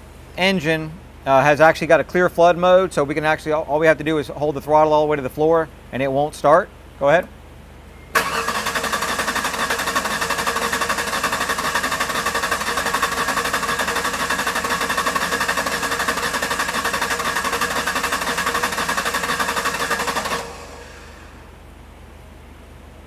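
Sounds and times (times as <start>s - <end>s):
engine cranking on starter: 8.2s - 21.5s.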